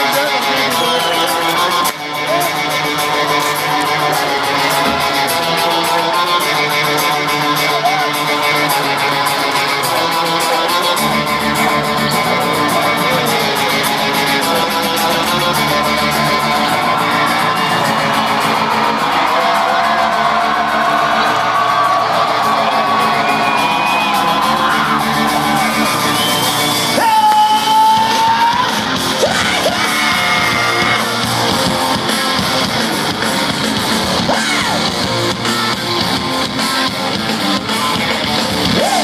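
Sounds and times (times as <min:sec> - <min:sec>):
live rock band: 0:00.0 - 0:39.0
loud electric guitar: 0:00.0 - 0:39.0.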